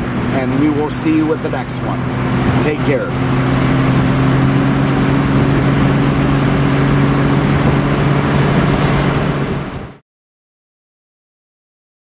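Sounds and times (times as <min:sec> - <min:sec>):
car engine drone: 0:00.0 - 0:10.0
tyre and wind noise: 0:03.6 - 0:10.0.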